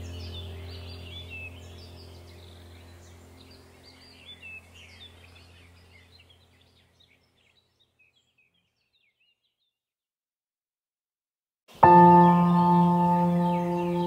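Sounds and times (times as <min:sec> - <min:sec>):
low steady hum: 0:00.0 - 0:08.2, 0:11.8 - 0:14.0
birds chirping and trilling: 0:00.0 - 0:09.8, 0:11.7 - 0:14.0.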